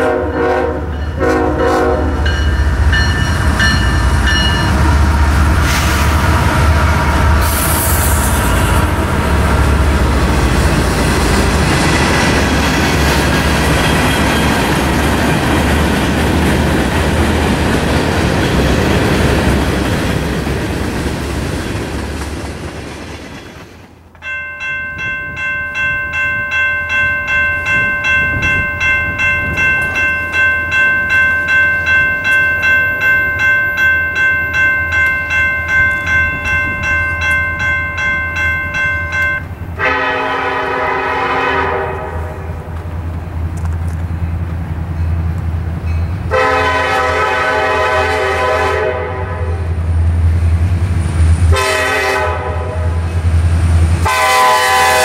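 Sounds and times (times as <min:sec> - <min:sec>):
crossing bell ringing: 0:00.0 - 0:05.6, 0:08.4 - 0:16.3, 0:24.2 - 0:43.4, 0:44.1 - 0:48.5
freight cars rolling on rails: 0:01.8 - 0:49.0.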